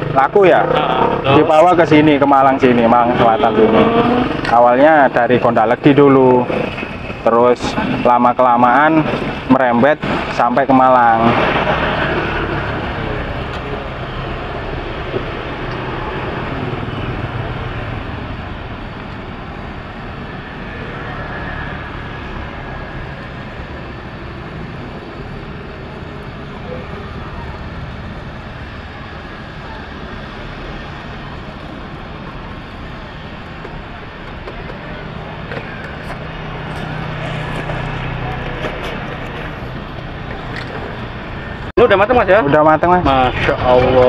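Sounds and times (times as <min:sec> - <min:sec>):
motorbikes and cars passing: 0:00.0 - 0:44.0
low engine hum: 0:11.3 - 0:41.7.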